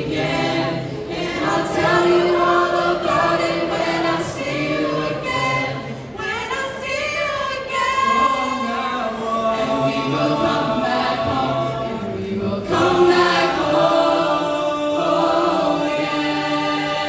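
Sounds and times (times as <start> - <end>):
choir singing a cappella: 0.0 - 17.0.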